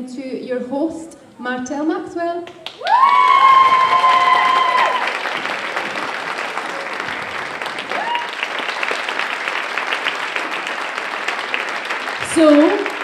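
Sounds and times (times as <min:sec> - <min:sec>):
audience applauding: 0:02.6 - 0:13.0.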